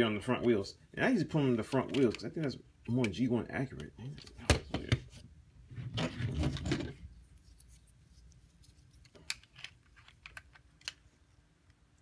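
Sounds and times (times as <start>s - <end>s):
plastic parts clicking: 9.0s - 11.1s.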